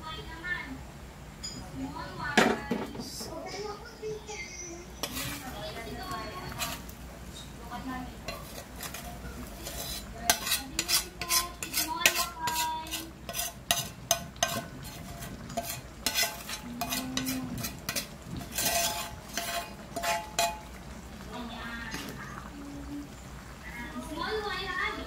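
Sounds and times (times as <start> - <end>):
spoon scraping a metal pan: 4.9 - 7.5, 8.2 - 20.8.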